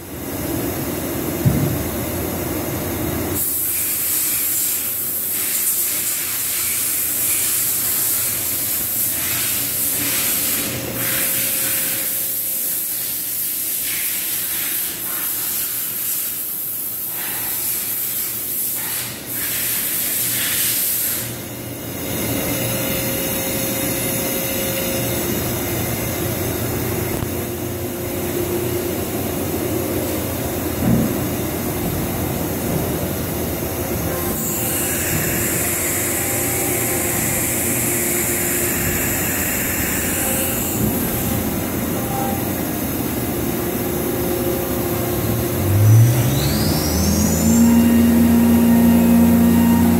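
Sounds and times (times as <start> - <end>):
machining center hiss and hum: 0.0 - 49.9
short knock: 1.4 - 1.8
lower hum with steady tones: 21.4 - 49.9.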